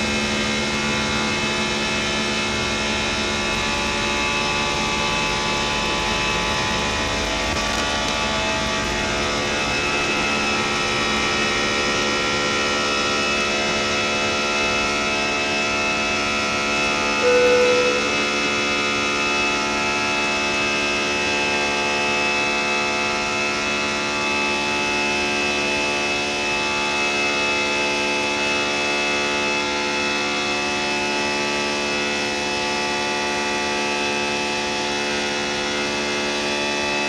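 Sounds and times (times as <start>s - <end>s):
airplane engine drone in cabin: 0.0s - 20.1s.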